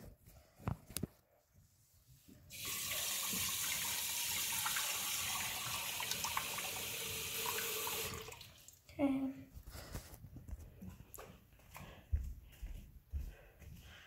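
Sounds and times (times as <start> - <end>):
water running into sink: 2.5 - 8.8.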